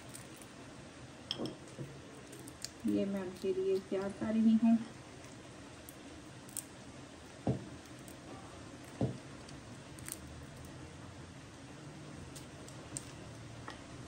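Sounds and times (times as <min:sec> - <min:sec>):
almonds cracking by hand: 0:00.0 - 0:00.6, 0:01.6 - 0:04.2, 0:05.2 - 0:06.8, 0:07.4 - 0:10.8, 0:12.2 - 0:13.4.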